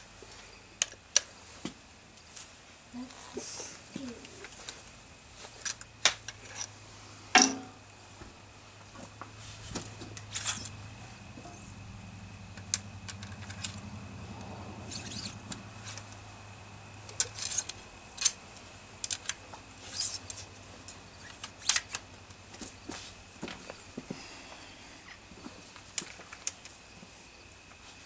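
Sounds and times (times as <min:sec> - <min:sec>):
low hum: 0:03.8 - 0:25.2
hands loading a rifle: 0:25.7 - 0:26.8.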